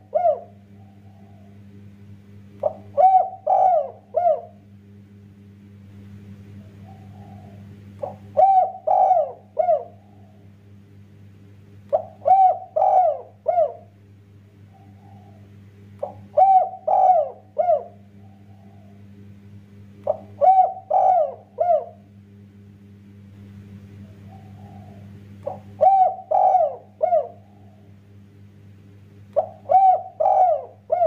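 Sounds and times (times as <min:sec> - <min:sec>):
dove cooing: 0:00.0 - 0:01.7, 0:02.6 - 0:04.7, 0:06.5 - 0:10.5, 0:11.9 - 0:14.0, 0:14.6 - 0:19.2, 0:20.0 - 0:22.1, 0:23.9 - 0:28.0, 0:29.4 - 0:31.0
faint low hum: 0:00.0 - 0:31.0.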